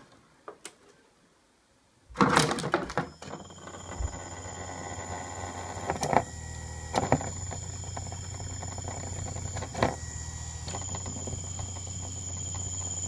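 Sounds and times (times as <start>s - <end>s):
hard disk spinning whine: 3.0s - 13.0s.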